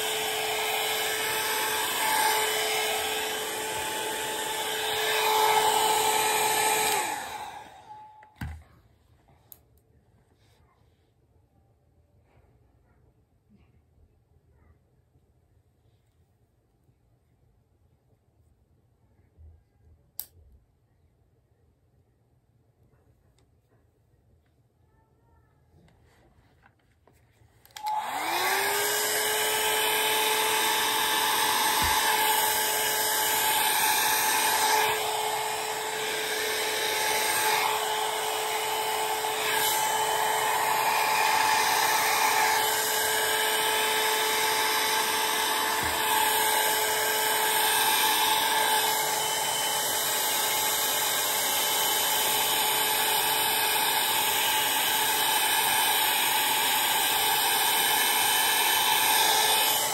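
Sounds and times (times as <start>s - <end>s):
hot-air brush motor hum: 0.0s - 8.6s, 27.8s - 59.9s.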